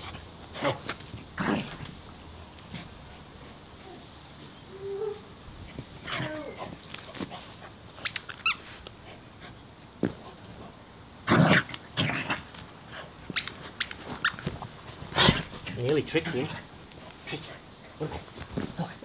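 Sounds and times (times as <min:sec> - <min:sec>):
dog whining: 0:04.7 - 0:05.4, 0:06.0 - 0:06.8.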